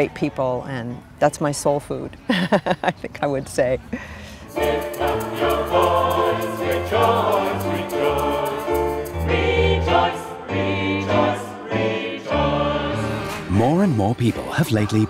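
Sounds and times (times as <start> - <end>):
gospel choir singing: 4.5 - 15.0.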